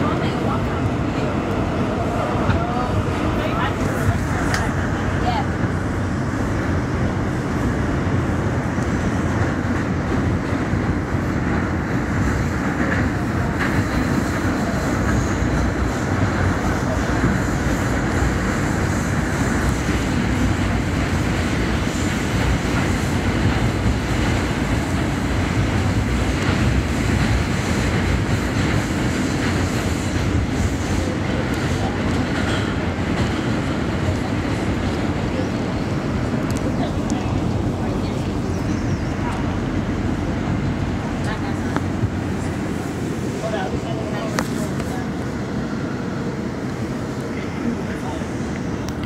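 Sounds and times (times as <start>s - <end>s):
subway train rumbling in tunnel: 0.0s - 49.0s
wheels clattering on track: 7.7s - 45.4s.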